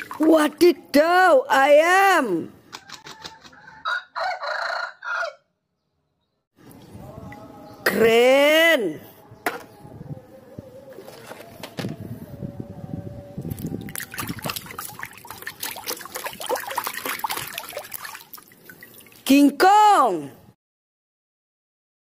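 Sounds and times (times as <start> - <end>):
water splashing in a plastic tub: 0.0 - 0.9, 13.5 - 19.3.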